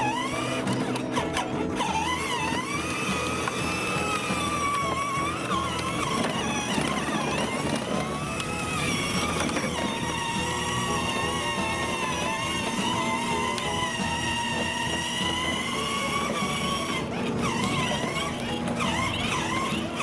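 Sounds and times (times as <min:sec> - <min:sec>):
electric ride-on toy motor whining: 0:00.0 - 0:20.0.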